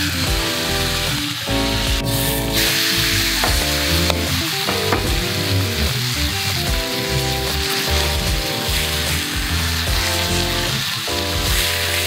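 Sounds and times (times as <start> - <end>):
steak sizzling in a frying pan: 0.0 - 12.0.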